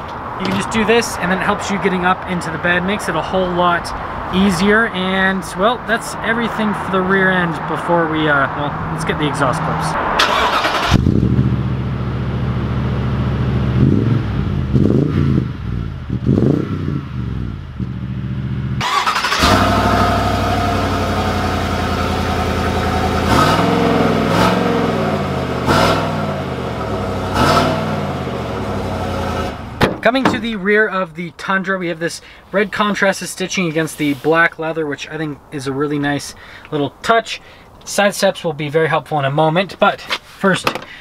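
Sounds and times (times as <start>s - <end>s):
truck engine idling and revving: 8.6s - 30.5s.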